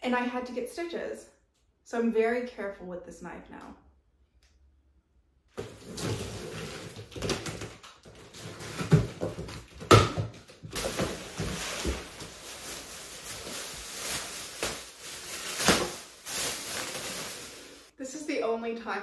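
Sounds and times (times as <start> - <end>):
cardboard flaps scraping and knocking: 5.6 - 12.3
plastic wrapping rustling: 5.6 - 17.9.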